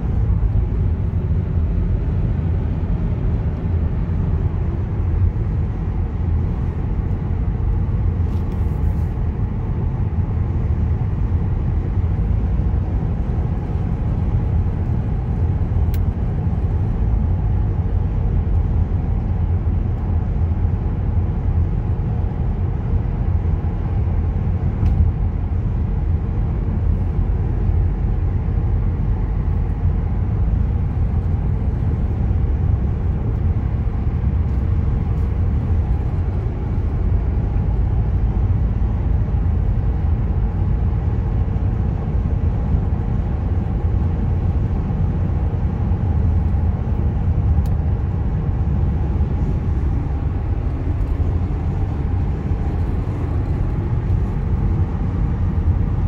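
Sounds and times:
car engine and tyre noise: 0.0s - 56.0s.

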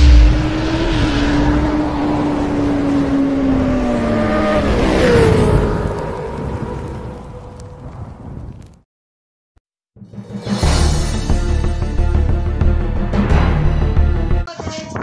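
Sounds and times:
motorcycle engine revving: 0.0s - 6.6s.

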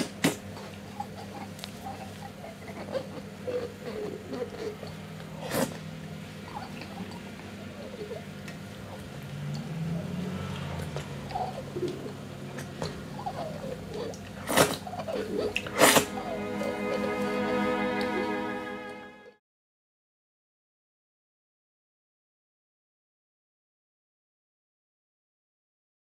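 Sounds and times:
man slurping food: 15.4s - 16.1s
bowed string music: 15.5s - 19.4s.

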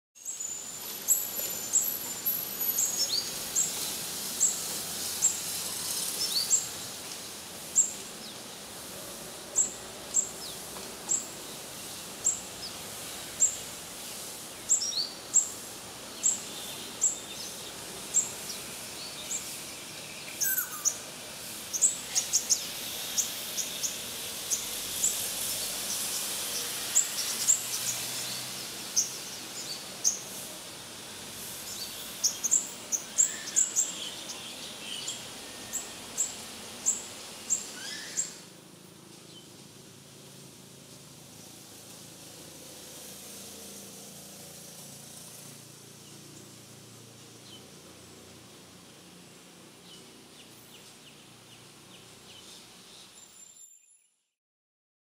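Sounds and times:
background hiss: 0.2s - 53.5s
bird high sharp chirps: 20.4s - 21.0s.

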